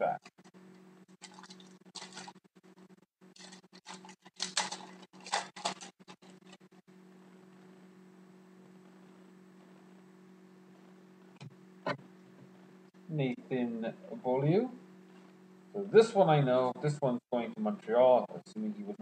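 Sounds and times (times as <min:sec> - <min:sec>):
steady low hum: 0:00.0 - 0:19.0
foil pack crinkling: 0:01.2 - 0:02.4, 0:03.4 - 0:06.6.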